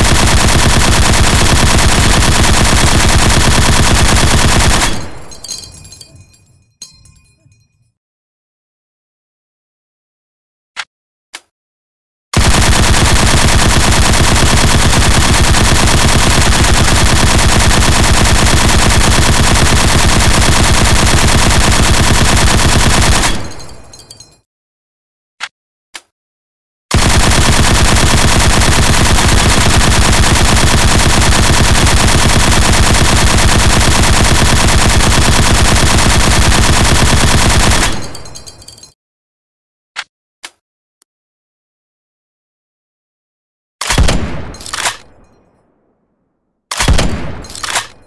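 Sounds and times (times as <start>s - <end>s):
machine gun firing bursts: 0.0s - 5.6s, 12.4s - 24.1s, 26.9s - 38.6s.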